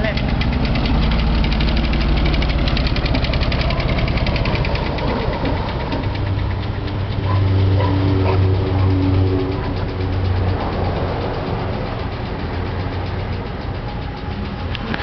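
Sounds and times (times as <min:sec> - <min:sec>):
car engine pulling away: 0:00.0 - 0:15.0
fast ticking: 0:00.0 - 0:15.0.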